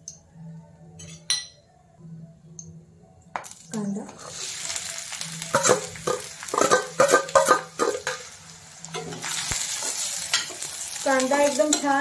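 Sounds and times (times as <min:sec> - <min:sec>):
onion sizzling in hot oil: 0:03.4 - 0:12.0
metal clattering and scraping pan: 0:05.6 - 0:08.3.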